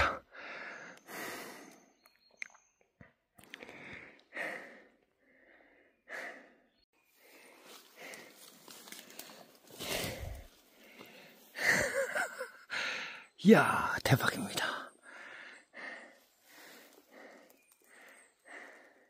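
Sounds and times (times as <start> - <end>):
man breathing out hard: 0.0 - 1.8, 3.6 - 11.8, 12.7 - 13.3, 15.0 - 19.0
rustling through undergrowth: 7.1 - 11.6.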